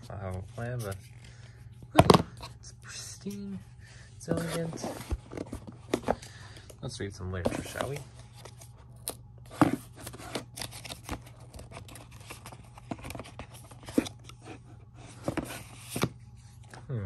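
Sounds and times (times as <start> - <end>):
cardboard scraping: 4.2 - 6.2.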